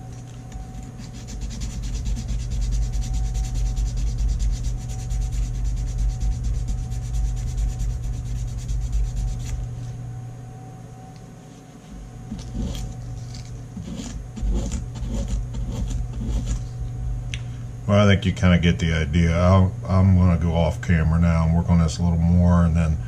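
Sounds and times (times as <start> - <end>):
sandpaper rubbing: 0.7 - 9.7, 12.3 - 16.7.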